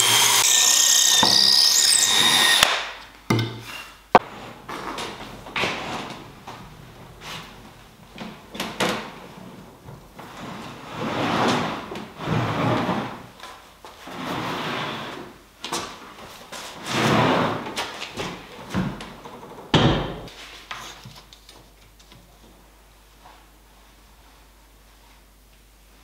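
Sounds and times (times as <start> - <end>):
wood slab scraping on workbench: 10.2 - 13.2.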